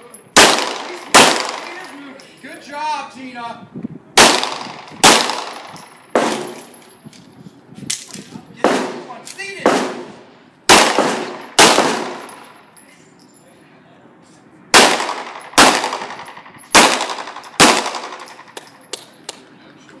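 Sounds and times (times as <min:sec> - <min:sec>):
pistol shots echoing: 0:00.4 - 0:01.9, 0:04.2 - 0:06.6, 0:08.6 - 0:12.5, 0:14.7 - 0:18.6.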